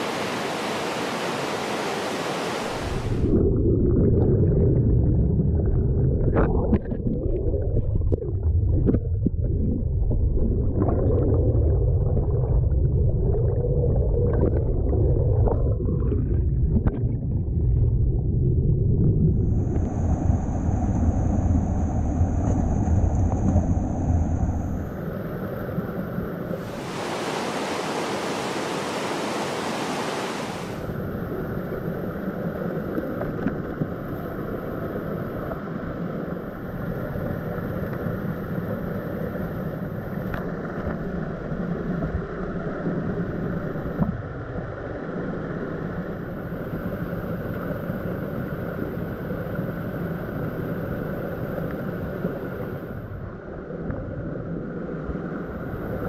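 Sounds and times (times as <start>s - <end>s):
stream water rushing: 0.0s - 3.3s, 26.6s - 31.9s
muffled underwater rumble with gurgling: 2.8s - 27.0s, 30.6s - 56.0s
cascade hissing: 26.6s - 30.9s.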